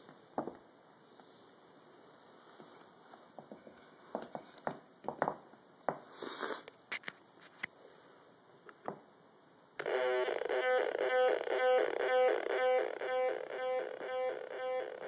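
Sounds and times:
synth square-wave tone: 0:09.8 - 0:15.0.

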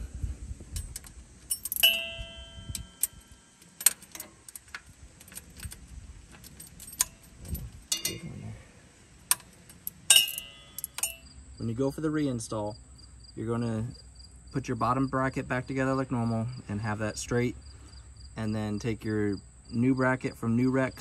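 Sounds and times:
wrench clinking on bolt: 0:00.7 - 0:08.3, 0:09.2 - 0:11.3.

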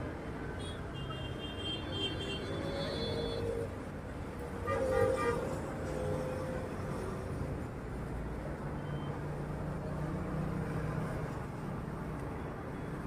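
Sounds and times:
road traffic rumble: 0:00.0 - 0:13.0
vehicle horns: 0:00.6 - 0:03.7, 0:04.6 - 0:06.3.

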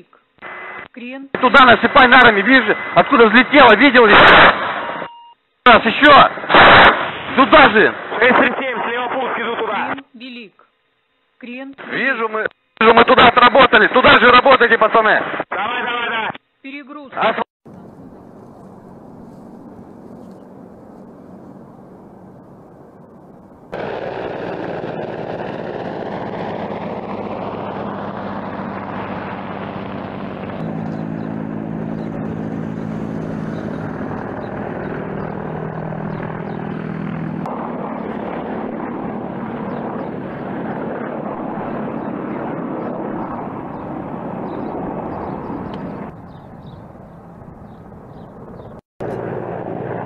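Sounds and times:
helicopter turbine and rotor noise: 0:00.3 - 0:05.1, 0:17.1 - 0:50.0.

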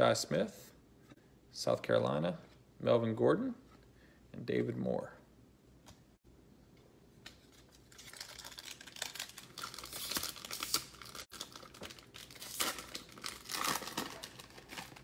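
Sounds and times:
foil wrapper crinkling: 0:07.4 - 0:15.0.

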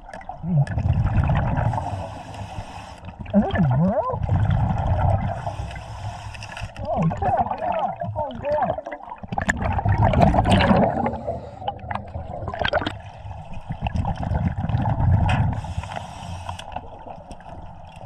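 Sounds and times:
bubbles gurgling underwater: 0:00.0 - 0:02.1, 0:03.2 - 0:05.6, 0:06.7 - 0:15.8.

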